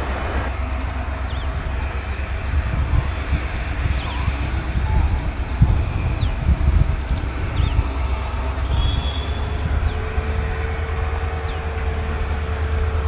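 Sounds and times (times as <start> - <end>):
diesel locomotives rumbling: 0.0 - 13.0
steady hum: 0.0 - 13.0
bird chirps: 3.0 - 10.0.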